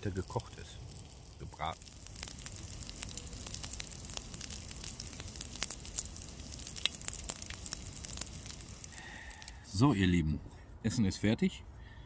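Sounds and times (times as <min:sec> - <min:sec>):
meat sizzling in a pan: 0:00.0 - 0:09.4.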